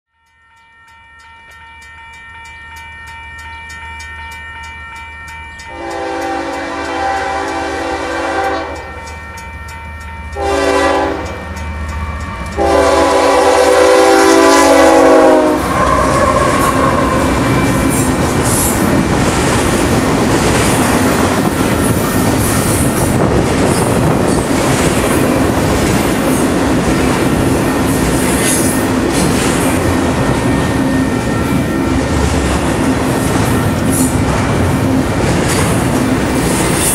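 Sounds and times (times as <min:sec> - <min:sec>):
train air horn blasts: 0:05.7 - 0:09.1, 0:10.3 - 0:11.5, 0:12.5 - 0:18.8.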